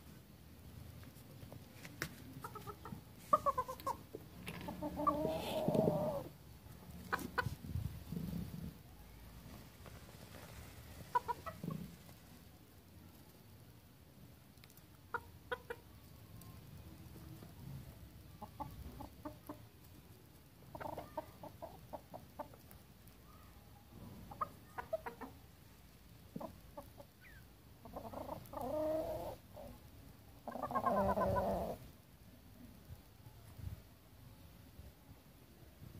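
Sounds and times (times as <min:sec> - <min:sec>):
roosters clucking: 0:02.0 - 0:08.8, 0:09.4 - 0:12.4, 0:15.0 - 0:15.9, 0:17.1 - 0:22.9, 0:23.9 - 0:29.8, 0:30.4 - 0:32.0.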